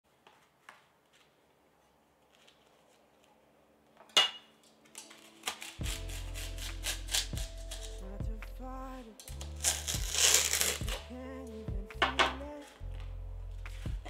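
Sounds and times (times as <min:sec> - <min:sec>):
background music: 0:04.2 - 0:14.0
knife crunching through wafer: 0:05.0 - 0:08.0, 0:09.3 - 0:11.1.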